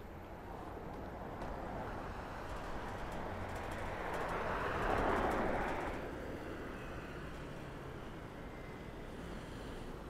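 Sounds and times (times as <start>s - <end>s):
street traffic noise: 0.0s - 10.0s.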